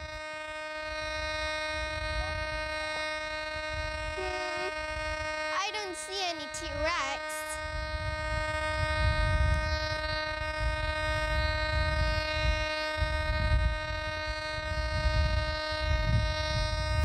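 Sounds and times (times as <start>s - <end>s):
metal detector buzzing tone: 1.2s - 7.8s.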